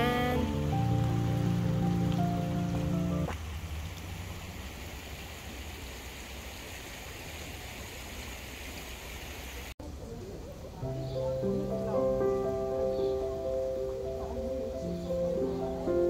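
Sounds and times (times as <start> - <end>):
stream flowing: 0.0 - 16.0.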